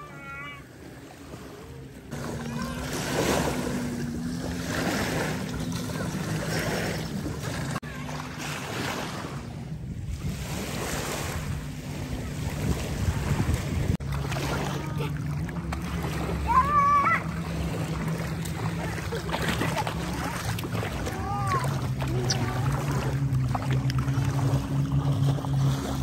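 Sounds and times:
waves breaking on shore: 0.0 - 26.0
wind buffeting microphone: 9.1 - 14.1.

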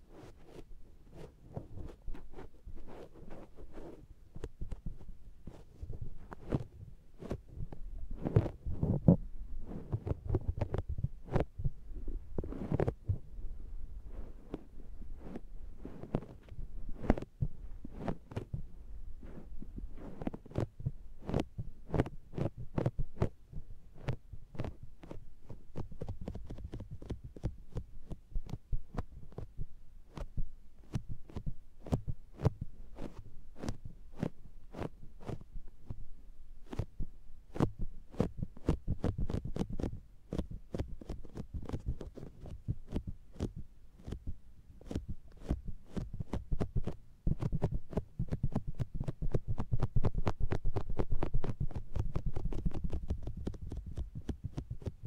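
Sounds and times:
sponge patting on microphone: 0.1 - 13.2, 14.1 - 36.0, 36.6 - 55.0.

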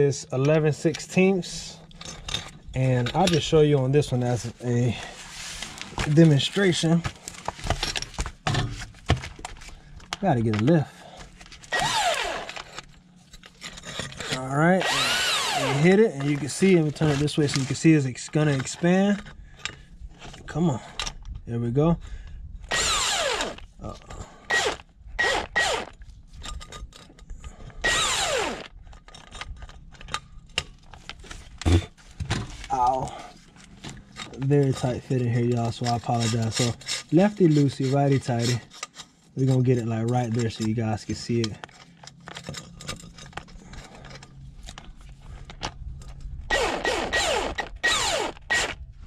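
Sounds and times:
power drill bursts: 11.7 - 12.6, 14.8 - 15.9, 22.7 - 23.6, 24.5 - 25.9, 27.8 - 28.7, 46.5 - 48.8
ratchet wrench strokes: 14.3 - 15.9, 27.8 - 28.7, 46.5 - 48.8.

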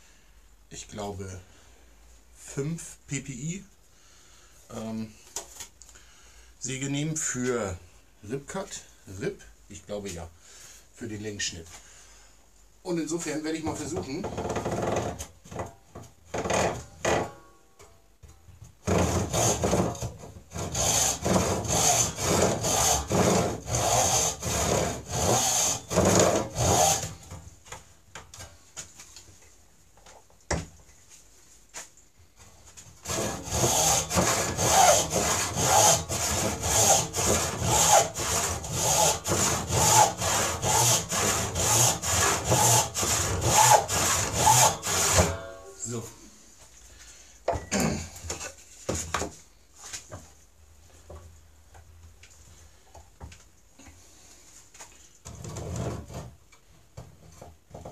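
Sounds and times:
hand saw cutting wood: 18.8 - 27.4, 33.0 - 45.6.

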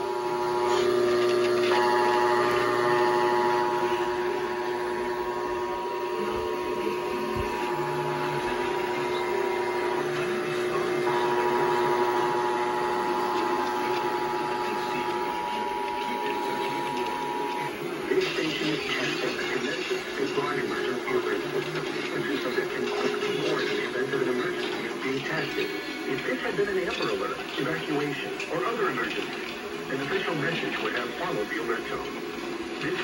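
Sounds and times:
radio hiss: 0.0 - 33.0
two-tone alert tone: 0.4 - 17.8.

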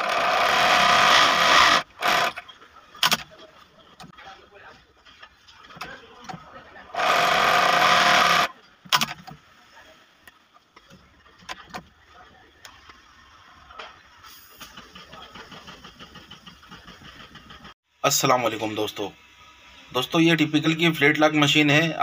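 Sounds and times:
sewing machine stitching: 0.0 - 3.2, 6.9 - 9.2.

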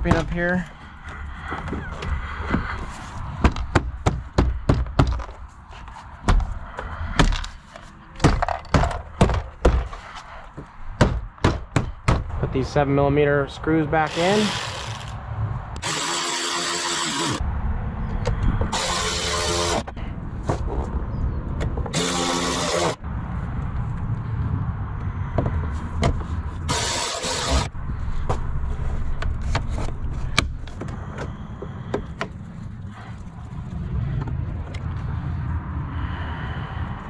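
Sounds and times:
electric ratchet running: 14.1 - 15.2, 15.8 - 17.4, 18.7 - 19.8, 22.0 - 23.0, 26.7 - 27.7
steady low rumble: 23.0 - 26.8, 27.4 - 37.0.

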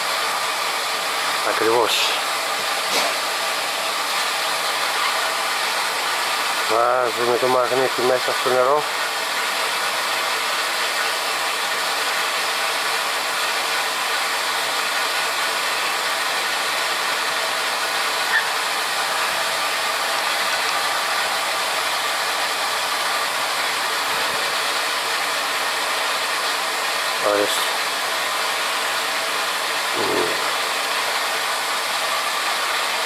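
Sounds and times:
steady hissing of machinery: 18.7 - 33.0.

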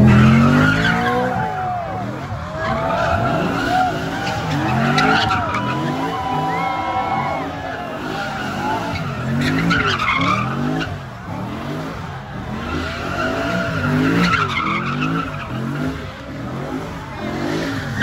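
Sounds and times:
car engine revving: 0.0 - 18.0
tyres screeching: 2.4 - 11.0.

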